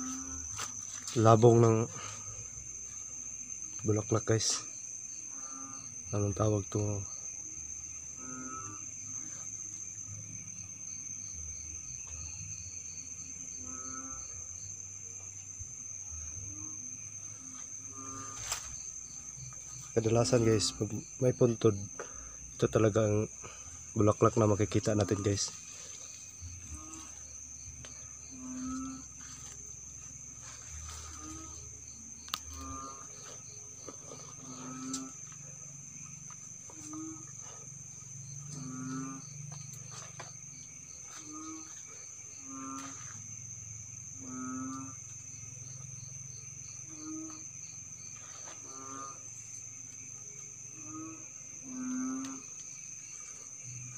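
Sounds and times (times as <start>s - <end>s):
crickets trilling: 0.0s - 53.9s
insect chirping: 0.0s - 53.9s.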